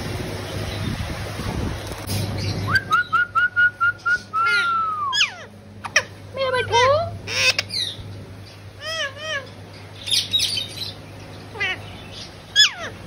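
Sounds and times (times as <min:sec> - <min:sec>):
parrots chirping and squawking: 0:04.0 - 0:13.0.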